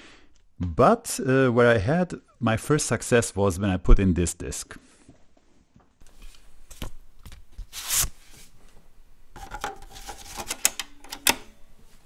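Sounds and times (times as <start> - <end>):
floppy disk rubbing and scraping: 9.4 - 10.8
drive latch clicking: 10.5 - 11.6.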